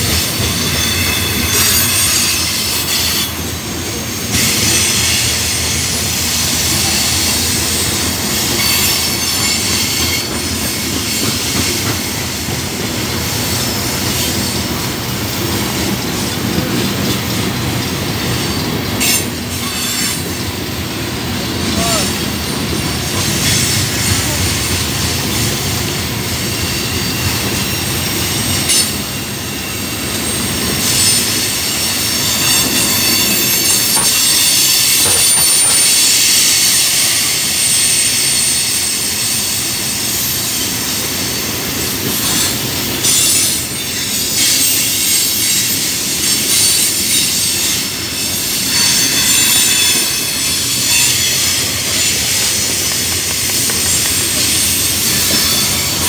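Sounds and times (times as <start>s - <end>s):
train wheels rushing on rail: 0.0s - 56.0s
high-pitched wheel squeal: 0.3s - 12.2s, 26.4s - 41.6s, 42.2s - 56.0s.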